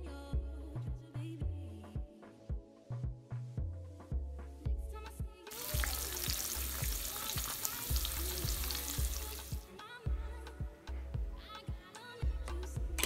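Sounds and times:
background music with beat: 0:00.0 - 0:13.0
eggs sizzling in a pan: 0:05.5 - 0:09.6.

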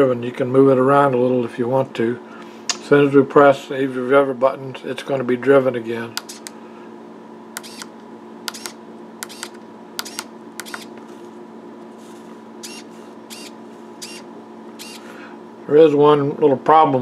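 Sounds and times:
faint steady hum: 0:00.0 - 0:17.0
push button and servo clicks: 0:07.6 - 0:10.9.

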